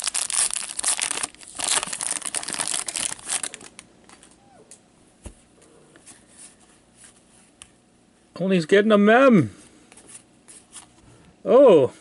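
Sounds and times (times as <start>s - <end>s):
foil pack crinkling and tearing: 0.0s - 3.8s.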